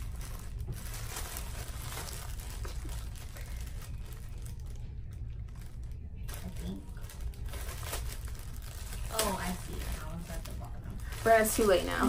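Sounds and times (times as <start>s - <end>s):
bags and packaging rustling: 0.0s - 12.0s
low steady hum: 0.0s - 12.0s.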